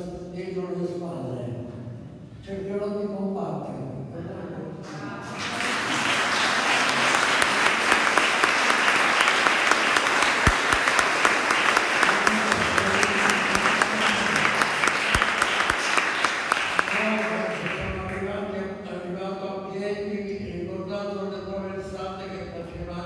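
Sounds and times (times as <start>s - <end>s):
audience applauding: 5.2s - 18.3s.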